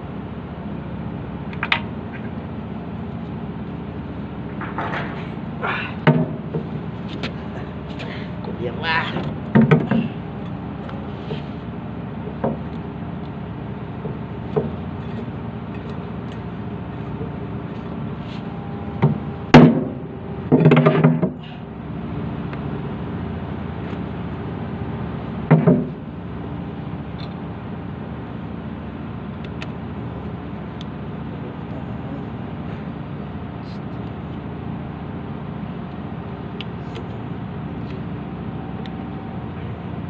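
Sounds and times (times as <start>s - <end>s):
engine humming: 0.0s - 40.0s
metal knocks and clatters: 4.6s - 5.3s.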